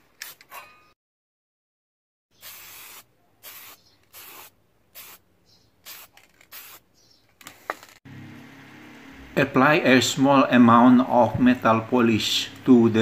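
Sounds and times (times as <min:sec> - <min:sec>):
spray paint can hissing: 0:02.4 - 0:05.2, 0:05.8 - 0:06.8.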